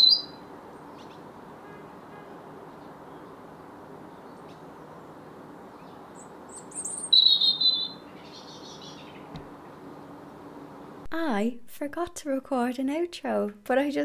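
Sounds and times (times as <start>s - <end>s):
songbird singing warbling phrase: 0.0s - 0.5s, 5.8s - 9.3s
low background noise: 0.0s - 14.0s.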